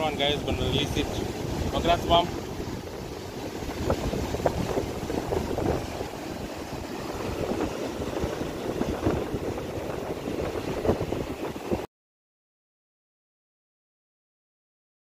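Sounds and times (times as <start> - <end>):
surf breaking on beach: 0.0 - 11.9
wind buffeting microphone: 0.0 - 11.9.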